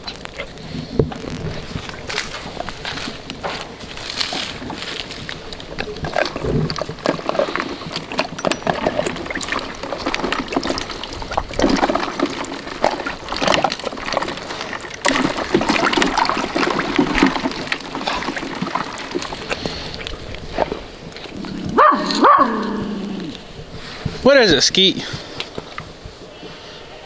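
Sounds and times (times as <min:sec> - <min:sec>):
water splashing and sloshing: 0:00.0 - 0:24.3
ice chunks knocking: 0:06.2 - 0:19.8.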